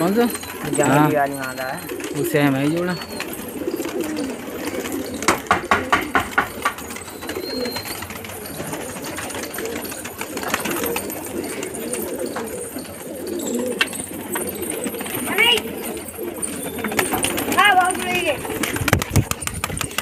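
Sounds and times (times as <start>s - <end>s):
pigeons cooing: 0.0s - 20.0s.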